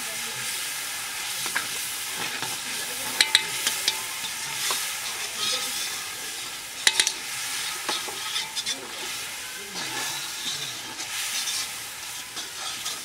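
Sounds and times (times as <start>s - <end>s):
food sizzling in hot oil: 0.0s - 13.0s
metal spatula scraping wok: 0.3s - 13.0s.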